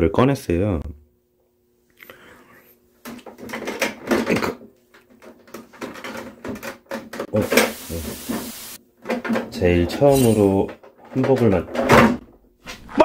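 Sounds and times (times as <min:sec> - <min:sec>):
steady hiss: 0:07.3 - 0:08.8.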